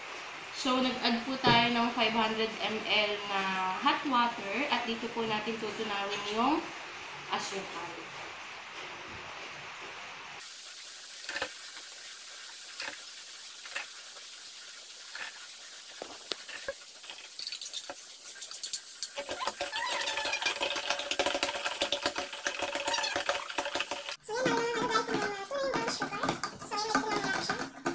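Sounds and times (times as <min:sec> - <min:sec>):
spoon stirring in plastic pitcher: 0:15.0 - 0:27.9
spoon tapping and scraping: 0:16.0 - 0:27.9.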